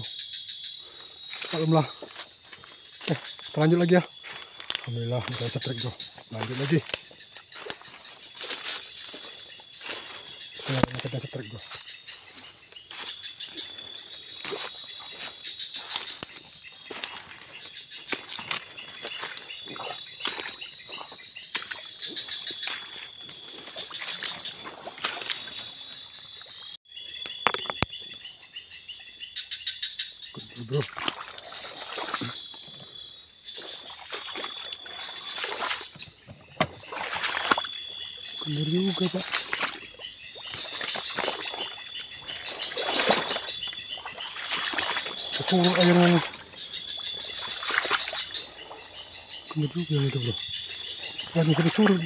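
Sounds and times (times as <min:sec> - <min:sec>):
insects trilling: 0:00.0 - 0:52.0
footsteps sloshing through water: 0:01.2 - 0:26.6, 0:30.8 - 0:52.0
brushing through undergrowth: 0:01.3 - 0:25.9.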